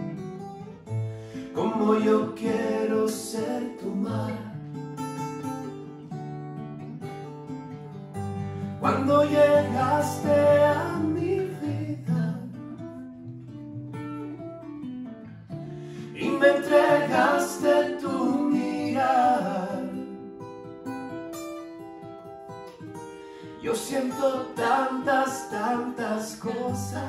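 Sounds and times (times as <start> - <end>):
acoustic guitar chords: 0.0 - 27.0
men singing a ballad: 1.4 - 4.6, 8.8 - 12.4, 16.0 - 20.2, 23.6 - 27.0.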